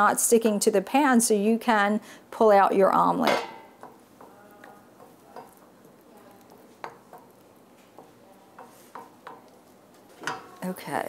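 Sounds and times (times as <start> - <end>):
spatula scraping in frying pan: 3.2 - 10.7.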